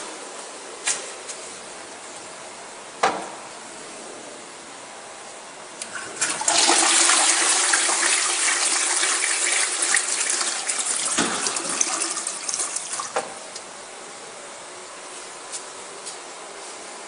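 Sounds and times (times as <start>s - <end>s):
toilet flushing: 5.8s - 13.5s.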